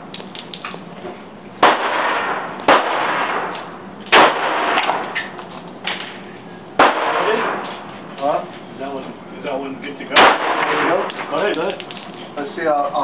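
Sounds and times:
pistol shots echoing: 0:01.6 - 0:05.2, 0:06.8 - 0:07.7, 0:10.1 - 0:11.3.

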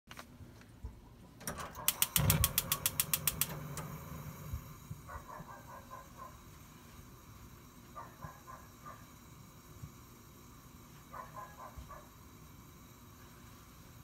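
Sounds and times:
gas stove igniter clicking: 0:01.4 - 0:04.8
burner lighting rumble: 0:01.7 - 0:14.0.

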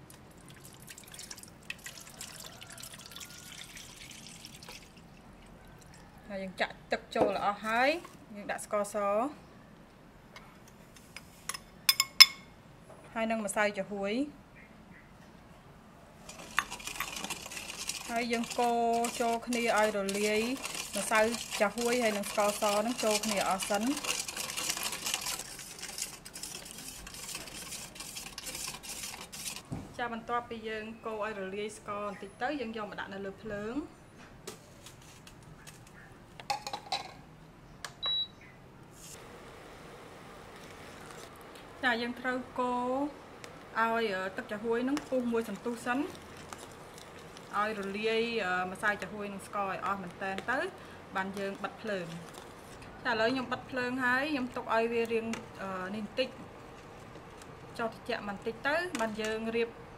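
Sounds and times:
water pouring into metal pot: 0:00.4 - 0:05.2
spoon scraping metal pot: 0:16.3 - 0:29.7, 0:44.5 - 0:48.0.

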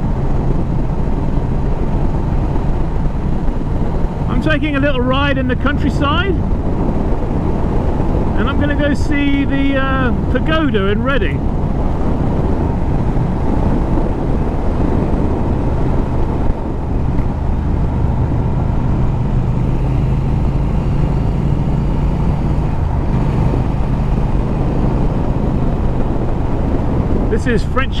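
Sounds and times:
motorcycle engine cruising: 0:00.0 - 0:28.0
road noise: 0:00.0 - 0:28.0.

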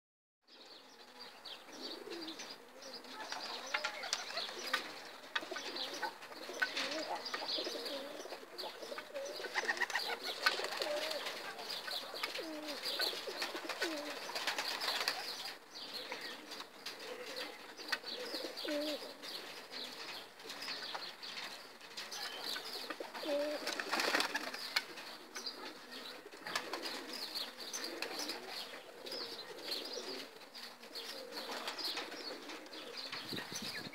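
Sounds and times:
pigeons cooing: 0:00.6 - 0:33.9
wings flapping: 0:09.4 - 0:15.5, 0:22.8 - 0:25.0.

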